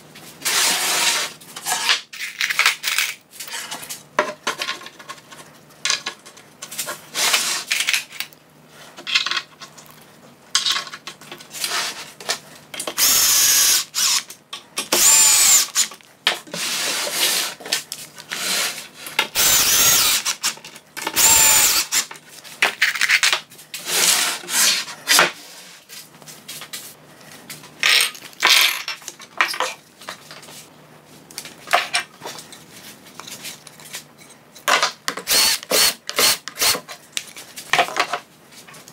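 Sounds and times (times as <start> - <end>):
cordless drill driving screws: 13.0 - 14.2, 15.0 - 15.9, 19.4 - 20.4, 21.2 - 22.1, 35.3 - 36.8.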